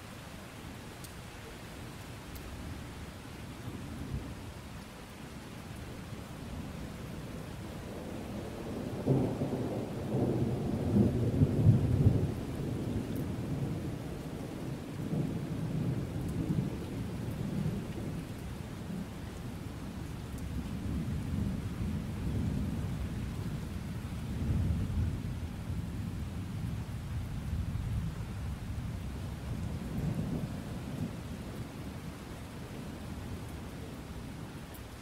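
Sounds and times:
steady rain: 0.0s - 35.0s
thunder rumbling: 29.3s - 31.6s.

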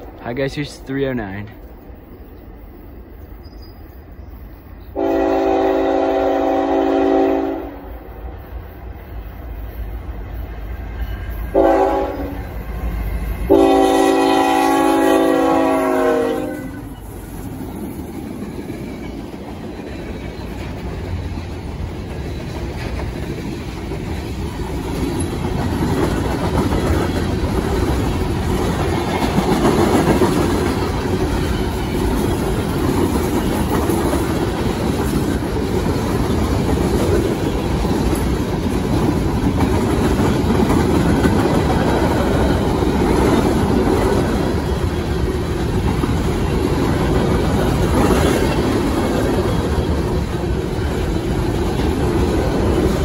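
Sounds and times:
train air horn blasts: 5.0s - 8.0s, 11.5s - 12.5s, 13.5s - 16.9s
locomotives passing: 7.5s - 53.0s.

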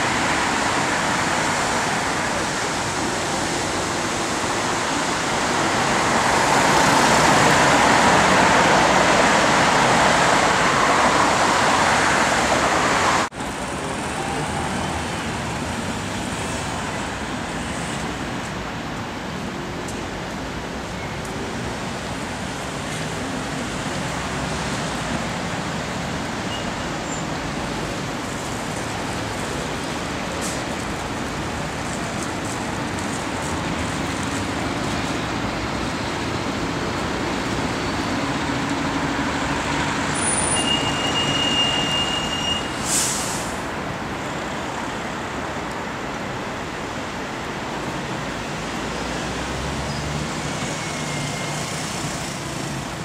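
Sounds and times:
passing vehicles hum: 0.0s - 53.0s
brief high squeal: 40.2s - 43.3s
short hiss: 42.7s - 43.6s.

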